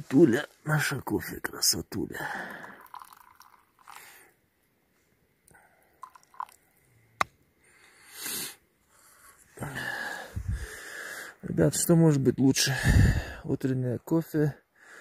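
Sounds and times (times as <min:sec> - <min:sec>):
slurping sip: 0:02.4 - 0:04.2
cup clicks: 0:02.7 - 0:04.0
breathy exhale: 0:07.7 - 0:11.4.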